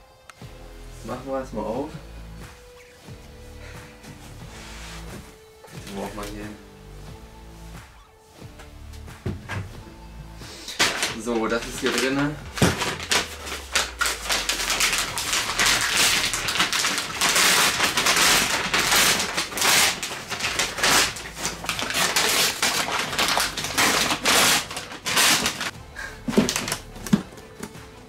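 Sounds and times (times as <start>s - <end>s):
paper bag crumpling and tearing: 10.6s - 25.7s, 26.3s - 27.0s.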